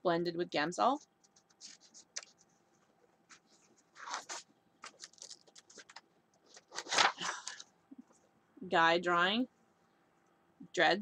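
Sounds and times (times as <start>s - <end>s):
sketchbook pages rustling: 0.9s - 8.3s.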